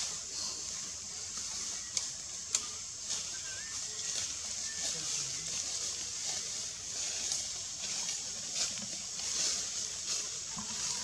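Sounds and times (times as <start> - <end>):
faint ticks and rustles: 0.0 - 11.0
high-pitched insect drone: 0.0 - 11.0.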